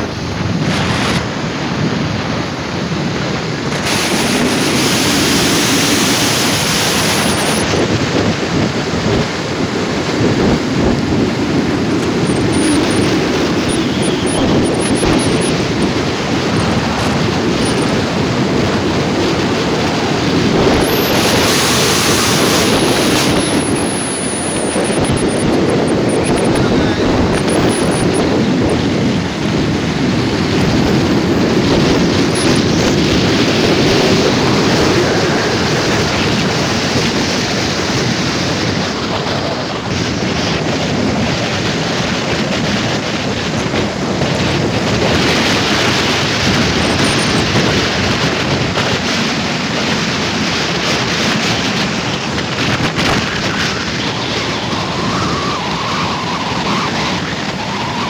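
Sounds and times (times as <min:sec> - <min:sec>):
road noise: 0:00.0 - 0:58.0
wind buffeting microphone: 0:00.0 - 0:58.0.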